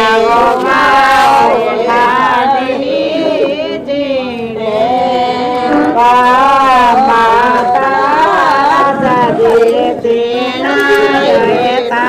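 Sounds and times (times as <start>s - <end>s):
woman singing: 0.0s - 12.0s.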